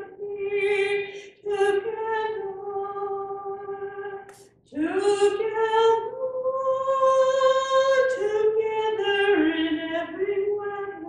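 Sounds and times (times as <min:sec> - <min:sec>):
woman singing: 0:00.0 - 0:11.0.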